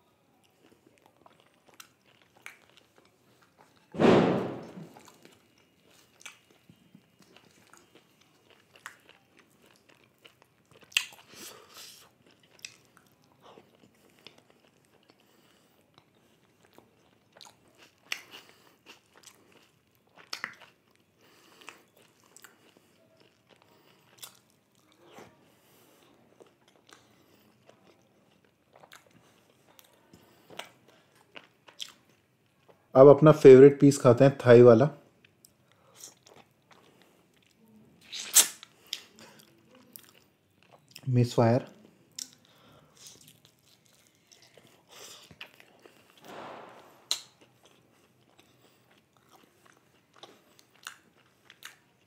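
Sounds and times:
person chewing and biting: 0.6 - 25.4, 26.0 - 32.2, 35.3 - 41.0, 42.1 - 52.0
loud thump: 4.0 - 5.0, 46.2 - 47.1
wet mouth clicks: 38.0 - 39.1, 47.1 - 47.4.

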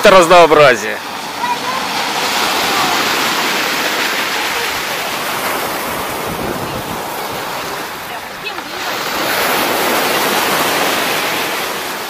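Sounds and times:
rough waves breaking on shore: 0.0 - 12.0.

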